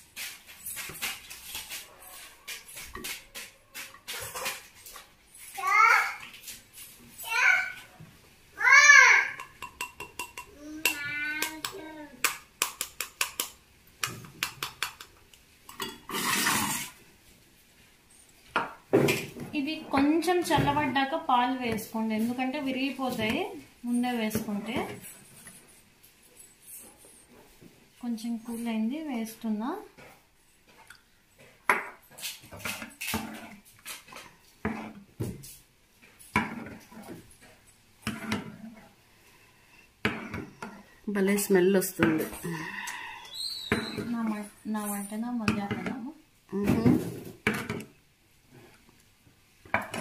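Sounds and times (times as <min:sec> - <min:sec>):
ladle scraping and clinking on pan: 0:15.7 - 0:17.0.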